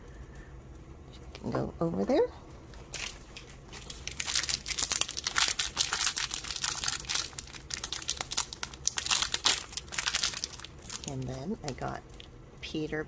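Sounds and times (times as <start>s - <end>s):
wrapper crinkling and tearing: 2.8s - 11.4s.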